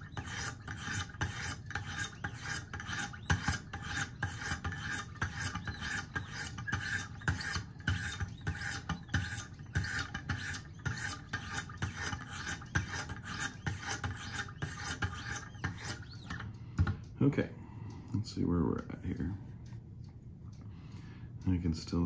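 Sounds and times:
sharpening stones rasping on blade: 0.0s - 16.4s.

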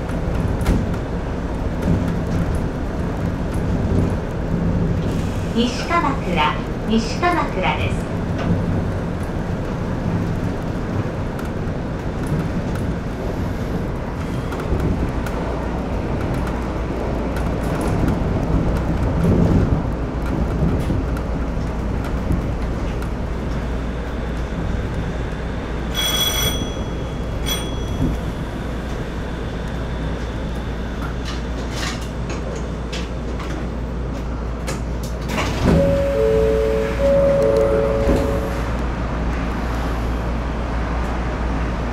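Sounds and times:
monorail car rumble and hum: 0.0s - 41.9s
short high electronic beep: 35.8s - 38.6s
two-note chime: 35.8s - 38.6s.

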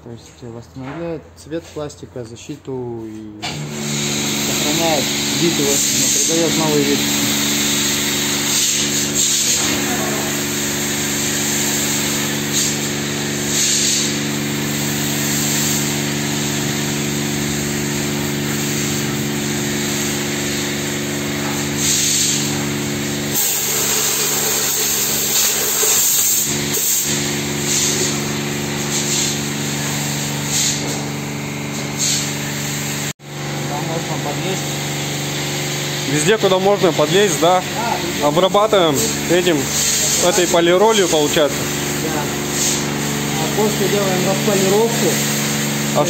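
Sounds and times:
short hissing bursts: 3.8s - 31.0s, 31.7s - 33.1s, 38.9s - 46.0s.

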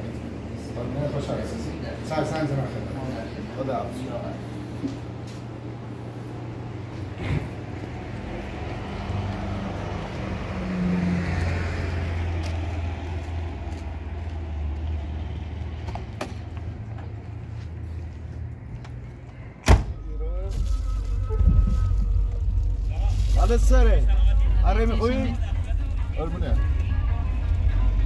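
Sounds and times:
car engine running: 21.6s - 28.0s.

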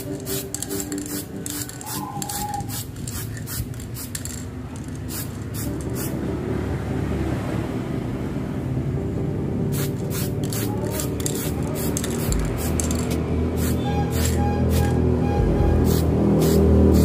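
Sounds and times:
aerosol spray can hissing: 0.0s - 4.4s, 5.0s - 6.2s, 9.8s - 15.0s, 15.8s - 17.0s.

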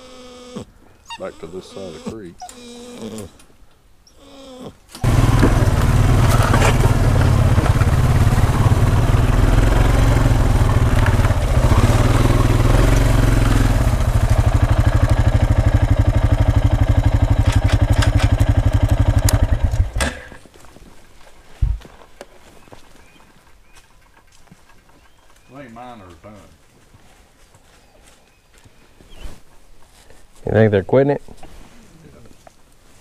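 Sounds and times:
motor vehicle engine running: 5.0s - 20.3s.

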